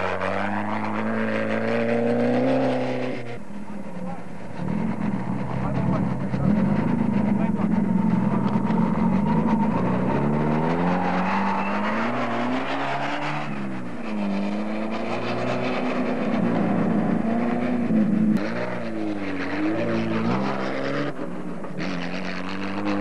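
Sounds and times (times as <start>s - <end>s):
small race car engine accelerating: 0.0s - 23.0s.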